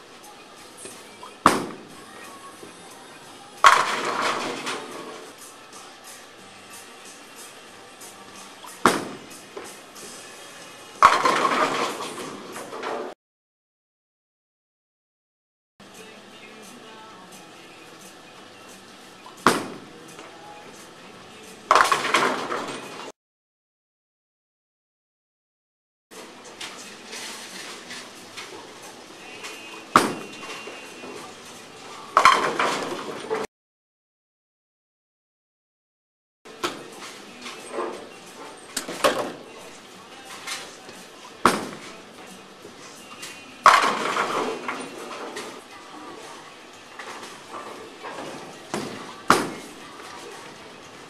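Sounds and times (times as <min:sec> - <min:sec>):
bowling ball rolling: 0:03.6 - 0:05.3, 0:11.0 - 0:13.1
bowling pins clattering: 0:03.6 - 0:05.4, 0:08.6 - 0:10.2, 0:11.0 - 0:13.1, 0:21.7 - 0:23.1, 0:26.6 - 0:33.5, 0:40.2 - 0:42.3, 0:43.3 - 0:46.4, 0:47.0 - 0:51.0
bowling ball thudding on lane: 0:08.6 - 0:09.4, 0:21.7 - 0:23.0, 0:30.0 - 0:30.6, 0:41.4 - 0:41.9, 0:47.6 - 0:49.8
bowling ball thud on lane: 0:08.7 - 0:09.4, 0:30.0 - 0:30.6, 0:41.5 - 0:41.9.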